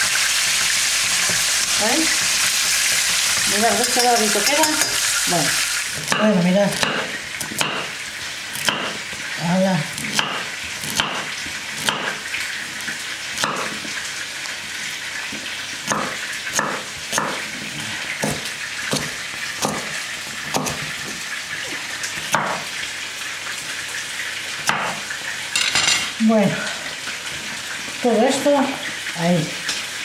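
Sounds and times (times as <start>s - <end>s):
frying pan sizzling: 0.0s - 30.0s
knife chopping on wooden board: 6.0s - 8.0s, 8.6s - 9.0s, 10.0s - 12.2s, 13.4s - 13.9s, 15.8s - 17.5s, 18.2s - 21.2s, 22.3s - 22.7s, 24.6s - 25.0s.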